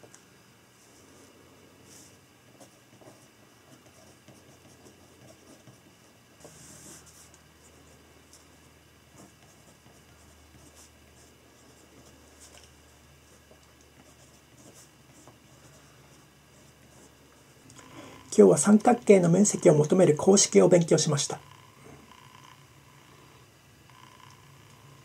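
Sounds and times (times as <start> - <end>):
pen scratching on paper: 1.9 - 17.1.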